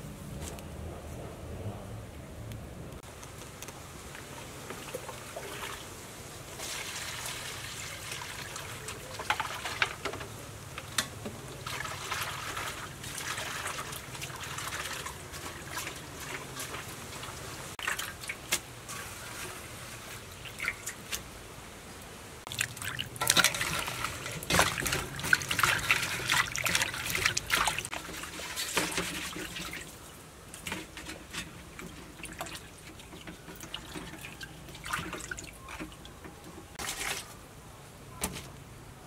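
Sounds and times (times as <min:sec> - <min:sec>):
hands splashing water in a bowl: 0:22.5 - 0:29.9.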